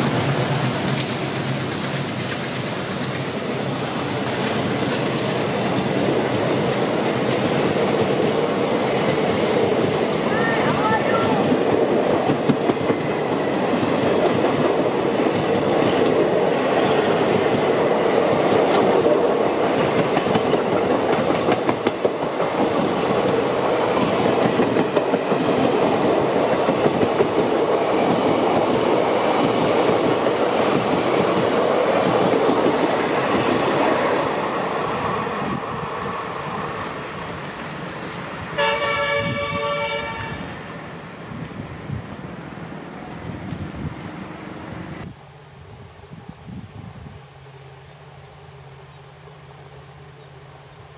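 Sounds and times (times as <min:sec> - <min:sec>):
wheels clacking over rail joints: 0:00.0 - 0:10.5
train rumbling past: 0:00.0 - 0:50.9
train air horn blast: 0:38.6 - 0:40.6.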